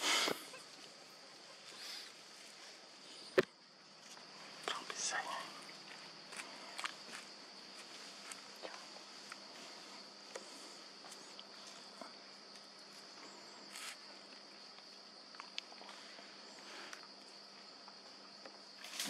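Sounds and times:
insects droning: 0.0s - 19.0s
leaves rustling: 5.6s - 11.9s.

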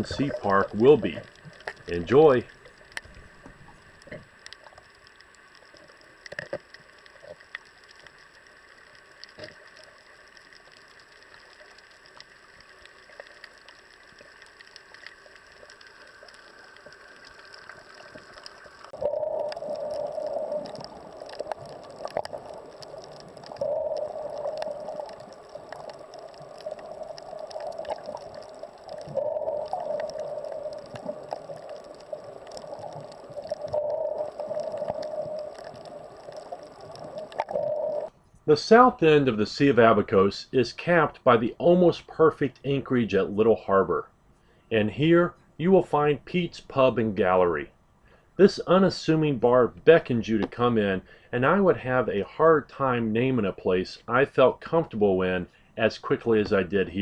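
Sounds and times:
muffled underwater rushing: 0.0s - 7.5s, 8.2s - 38.1s
faint underwater clicks: 0.0s - 38.4s.

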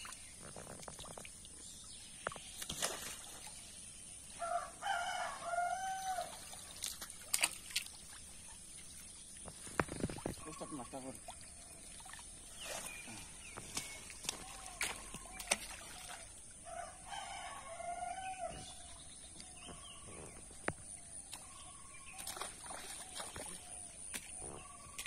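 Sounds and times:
rooster crowing: 4.4s - 6.4s, 16.7s - 18.7s.

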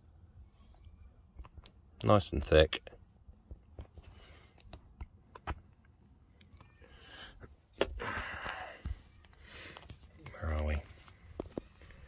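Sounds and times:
faint clicks and crinkles: 2.9s - 6.9s.

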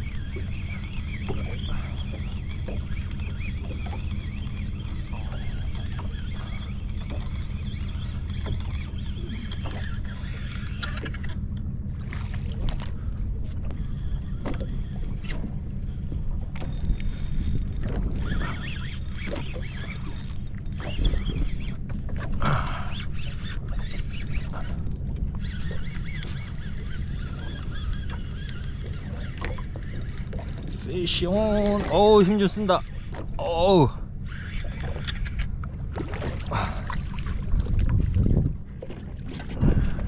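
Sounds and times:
boat motor running: 0.0s - 40.0s.

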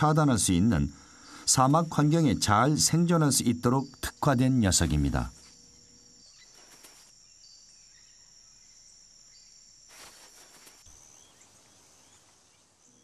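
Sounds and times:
high-pitched insect trill: 0.0s - 13.0s
soft hiss: 5.2s - 13.0s.

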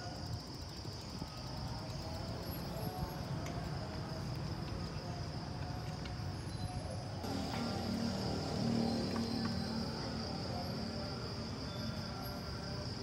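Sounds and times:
high-pitched insect drone: 6.5s - 13.0s.

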